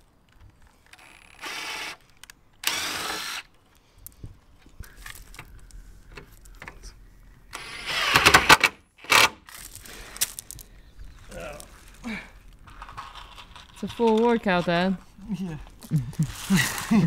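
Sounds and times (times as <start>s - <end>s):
impact driver driving screws: 2.6s - 3.5s, 7.5s - 9.4s.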